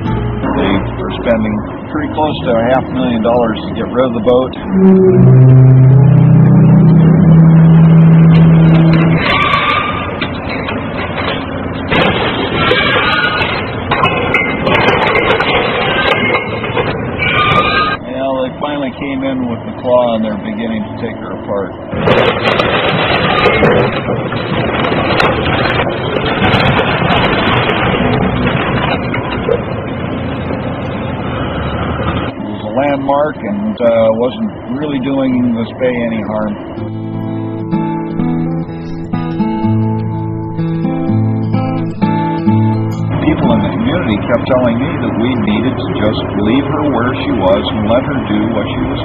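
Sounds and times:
high thin whine: 0:00.0 - 0:10.6
crane grab crushing rumble: 0:00.0 - 0:49.0
diesel engine running hard: 0:00.0 - 0:49.0
timber and metal cracking: 0:04.3 - 0:18.0, 0:21.9 - 0:32.4.

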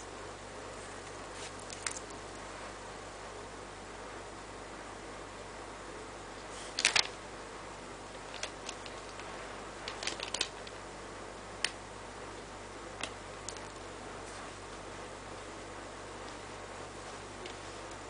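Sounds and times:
background hiss: 0:00.0 - 0:18.0
plastic pieces clicking together: 0:09.8 - 0:10.8.

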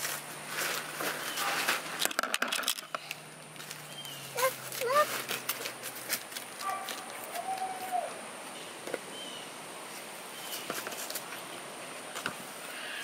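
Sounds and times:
rustling in dry leaves: 0:00.0 - 0:02.0, 0:03.0 - 0:13.0
bird chirps: 0:03.9 - 0:04.4.

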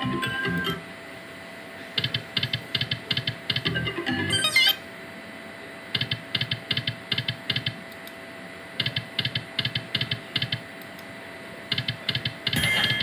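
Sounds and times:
slot machine reels clicking: 0:00.0 - 0:00.8.

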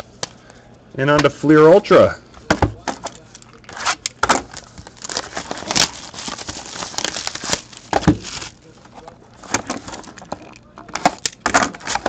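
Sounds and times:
plastic wrap crinkling: 0:03.6 - 0:12.0.

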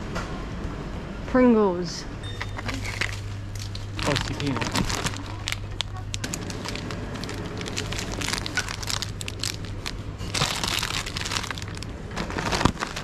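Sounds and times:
plastic wrapper crinkling: 0:02.6 - 0:13.0.

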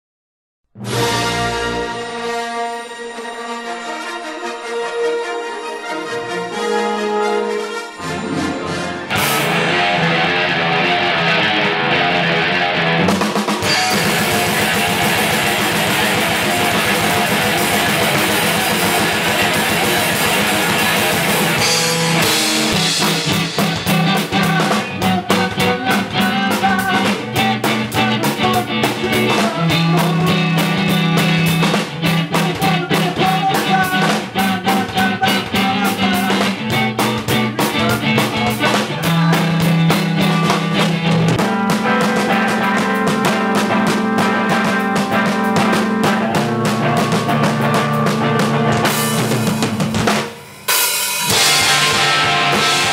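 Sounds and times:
bass guitar: 0:00.7 - 0:02.4, 0:08.0 - 0:50.4, 0:51.2 - 0:52.9
rock electric guitar: 0:08.0 - 0:52.9
fast drum kit beat: 0:09.1 - 0:52.9.

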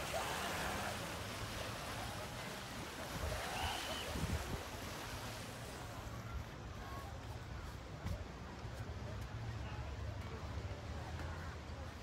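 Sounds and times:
sea water washing against rocks: 0:00.0 - 0:06.0.

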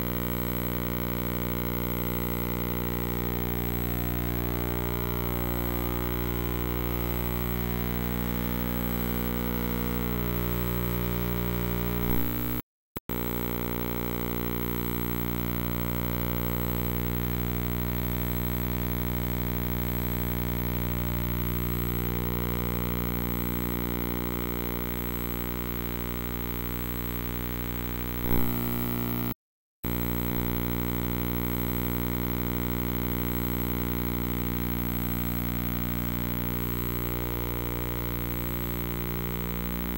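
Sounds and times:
buzzy electrical hum: 0:00.0 - 0:29.3, 0:29.9 - 0:39.9.

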